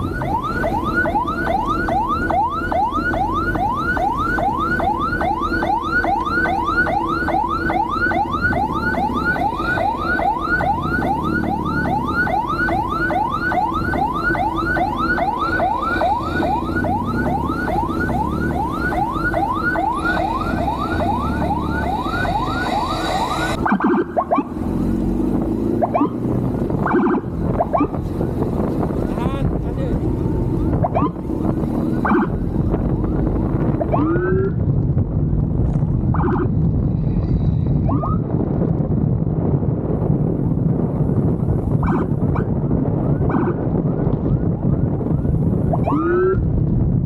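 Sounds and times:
electronic siren yelping: 0:00.0 - 0:28.4, 0:30.1 - 0:34.6, 0:36.1 - 0:36.6, 0:37.8 - 0:38.4, 0:41.7 - 0:46.4
motorcycle engine: 0:00.0 - 0:39.0
wind noise: 0:00.0 - 0:47.0.

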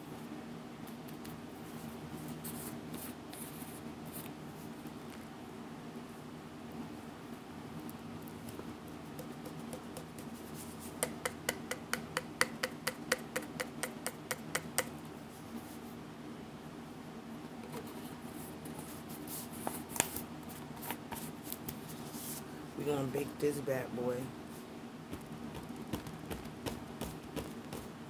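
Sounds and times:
hand tapping a canister: 0:11.0 - 0:14.9, 0:25.1 - 0:27.9.

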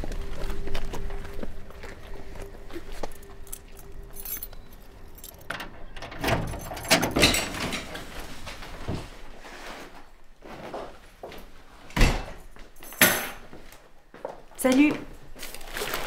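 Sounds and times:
keys jangling: 0:02.8 - 0:08.0, 0:12.8 - 0:13.4.

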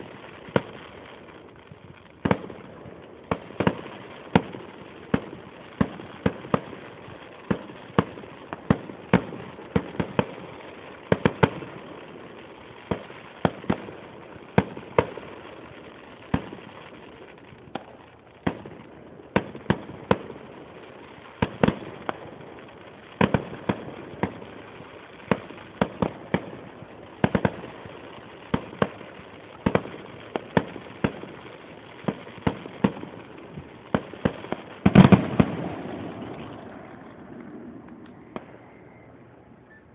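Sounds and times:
fireworks bursting with sharp bangs: 0:00.0 - 0:39.9.

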